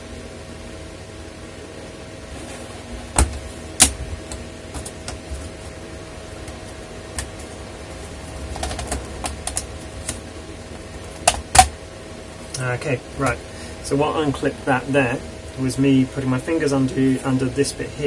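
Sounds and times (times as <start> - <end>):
plastic clips snapping loose: 11.2 - 11.7.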